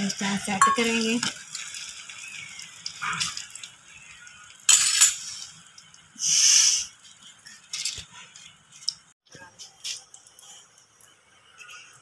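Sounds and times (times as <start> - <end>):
omelette cooking in frying pan: 0.0 - 12.0
spoon clattering into steel bowl: 0.6 - 1.3.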